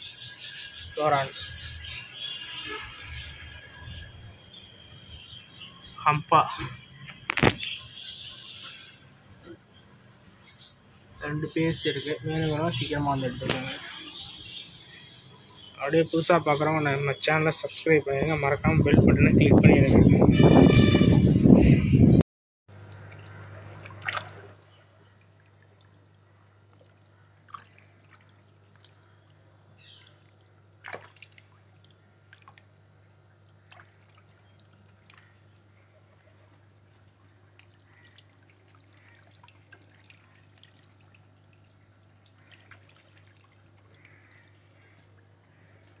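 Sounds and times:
water splashing and dripping: 13.2s - 14.1s, 22.8s - 32.8s, 33.4s - 46.0s.

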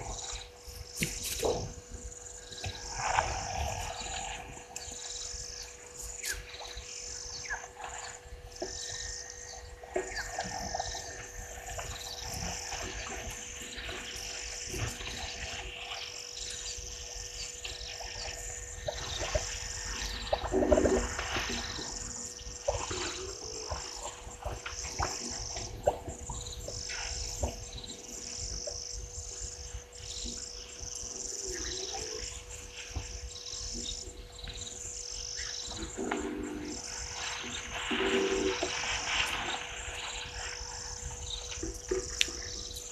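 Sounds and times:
insects trilling: 0.0s - 42.9s
steady hum: 0.0s - 42.9s
deep layered animal call: 35.4s - 42.7s.

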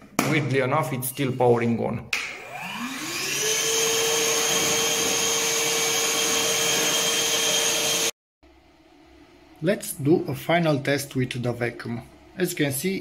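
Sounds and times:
vacuum motor whine: 2.2s - 8.1s.

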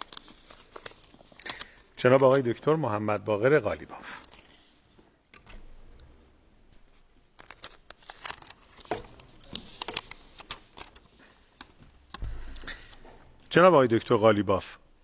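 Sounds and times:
paper rustling and shuffling: 0.0s - 2.4s, 6.7s - 13.1s.

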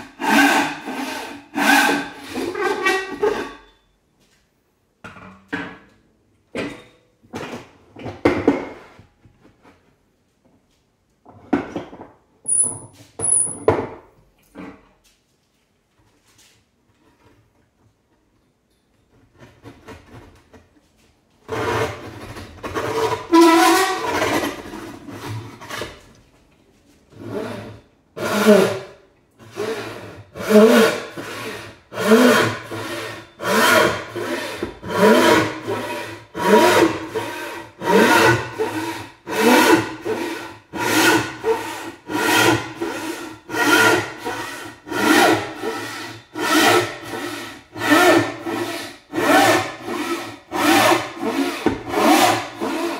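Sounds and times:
hand saw rasping through board: 0.0s - 3.6s, 21.5s - 26.0s, 27.2s - 52.9s.

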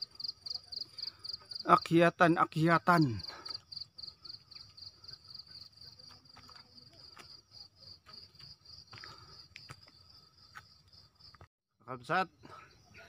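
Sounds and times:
insects pulsing chorus: 0.0s - 11.4s
footfalls on paved path: 5.7s - 11.5s.

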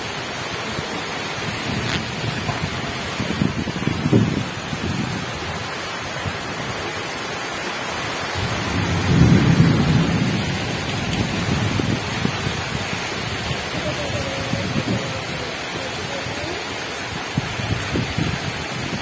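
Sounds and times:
heavy rain pouring: 0.0s - 19.0s
low rumble of thunder: 8.4s - 15.2s.

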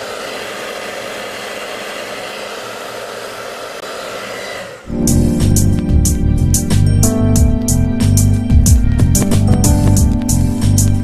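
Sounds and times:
hair dryer running: 0.0s - 5.0s.

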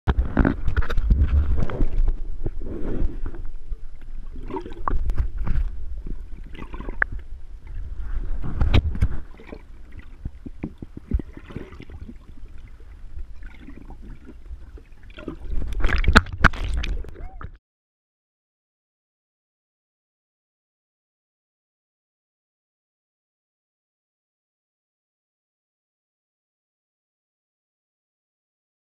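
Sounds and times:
muffled underwater water rumbling: 0.1s - 17.6s.

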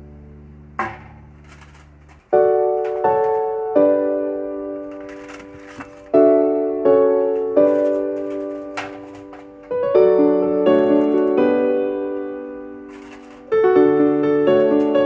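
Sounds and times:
piano chords: 0.0s - 15.0s
brief rustling: 1.3s - 3.7s, 4.8s - 6.3s, 7.3s - 9.8s, 10.7s - 11.6s, 12.2s - 15.0s.

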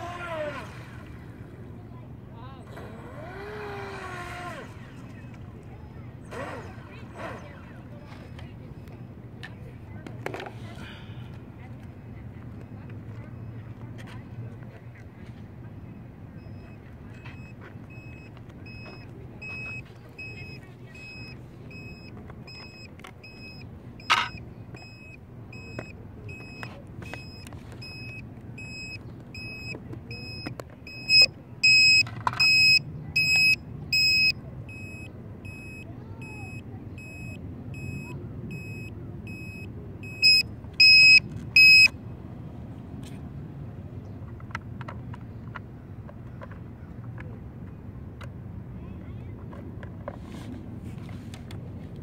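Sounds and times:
short high electronic beeps: 27.2s - 35.8s, 36.5s - 41.9s.

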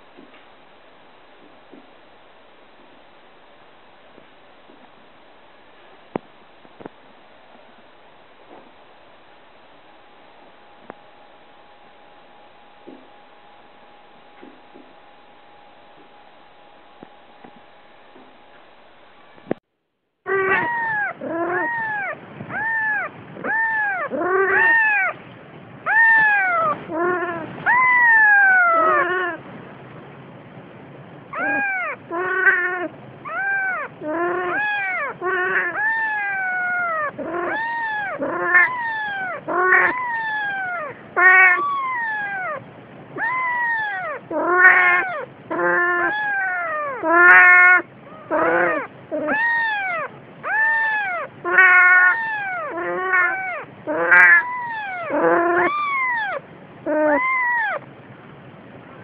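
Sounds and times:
kitten mewing: 20.3s - 25.2s, 25.9s - 29.4s, 31.3s - 42.6s, 43.2s - 57.9s.

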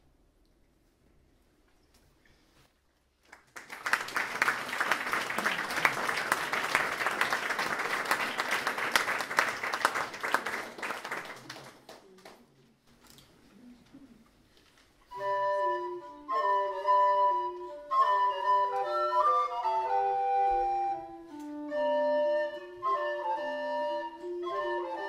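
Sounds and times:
audience applauding: 3.2s - 12.5s.

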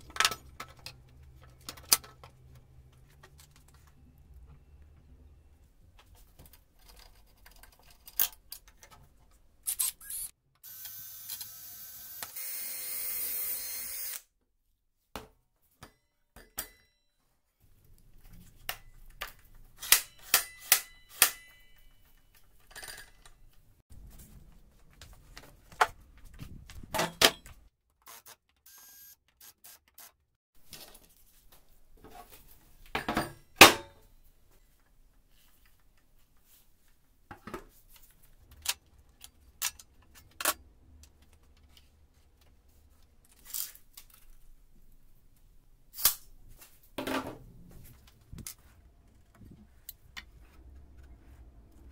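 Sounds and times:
power tool running: 10.0s - 14.2s, 28.1s - 30.1s.

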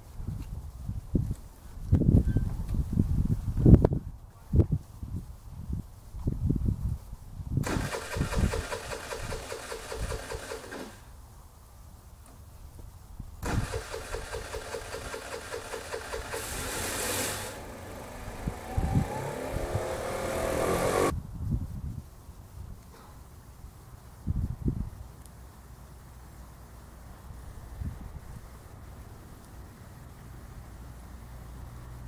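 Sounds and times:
motor engine running: 13.4s - 21.1s.

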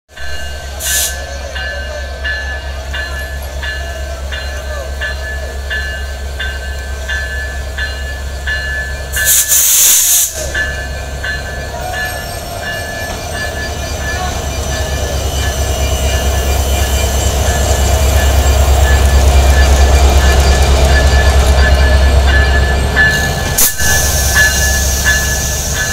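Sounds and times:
diesel locomotive engine rumble: 0.1s - 25.9s
loud hissing burst: 9.2s - 10.6s, 23.4s - 25.9s.

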